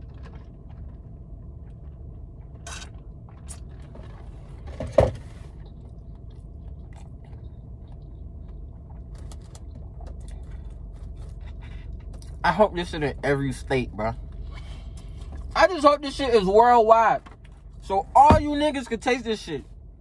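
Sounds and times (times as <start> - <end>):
person chewing: 0.0 - 4.4, 5.6 - 12.4
steady low hum: 0.0 - 20.0.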